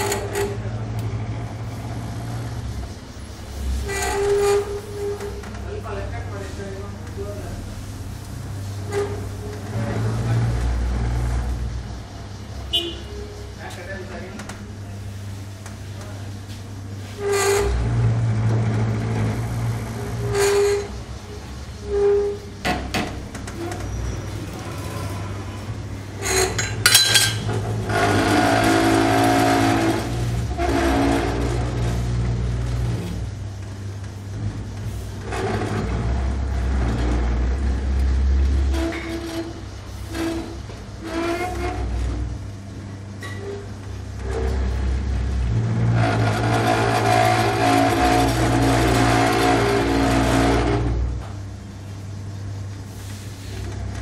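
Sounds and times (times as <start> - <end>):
rough rubbing noise: 0.0 - 42.5, 43.4 - 51.2, 52.8 - 54.0
grinding with whine: 0.0 - 54.0
rim-straightening machine whirring: 17.2 - 42.1.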